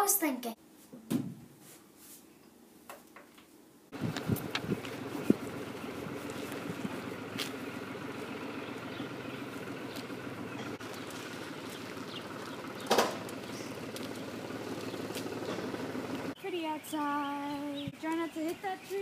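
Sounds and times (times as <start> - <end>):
bicycle tyres rumbling on pavement: 4.0 - 16.4.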